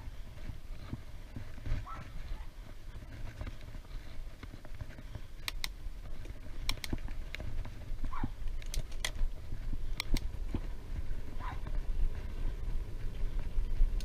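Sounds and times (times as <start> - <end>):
wind buffeting microphone: 0.0 - 14.0
sharp clicks: 5.4 - 7.7, 8.4 - 9.3, 9.9 - 10.4.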